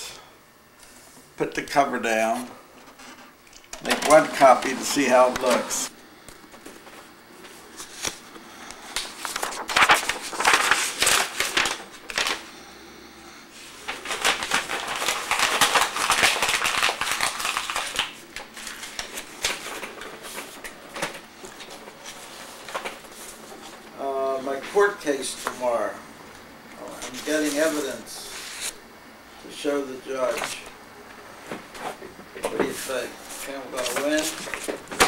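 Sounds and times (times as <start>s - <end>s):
paper rustling: 3.8s - 5.9s, 6.6s - 12.4s, 13.6s - 23.8s, 26.9s - 28.8s, 31.6s - 35.0s.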